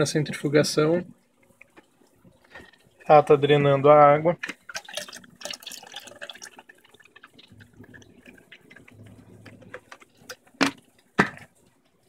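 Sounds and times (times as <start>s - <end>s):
water dripping and trickling: 4.5s - 11.1s.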